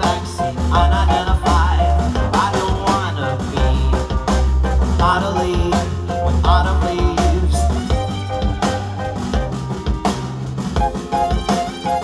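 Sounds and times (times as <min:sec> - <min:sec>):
man singing: 0:00.0 - 0:08.0
live pop band playing: 0:00.0 - 0:12.0.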